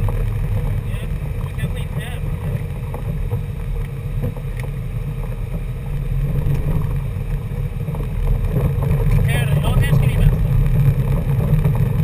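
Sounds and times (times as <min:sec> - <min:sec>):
car rumbling on gravel: 0:00.0 - 0:12.0.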